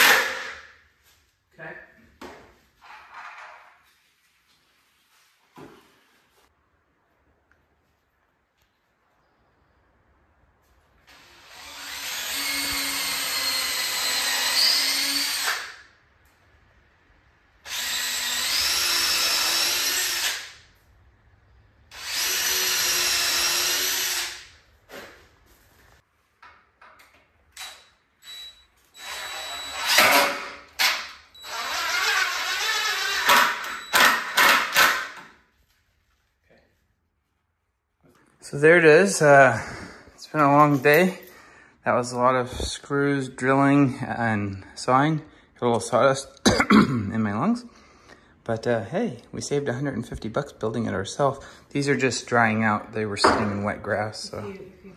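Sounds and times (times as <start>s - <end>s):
impact driver driving screws: 27.6s - 35.3s.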